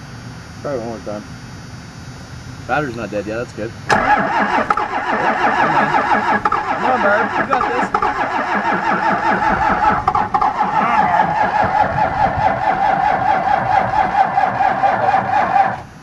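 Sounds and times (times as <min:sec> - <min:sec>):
diesel engine cranking on starter: 0:03.9 - 0:16.0.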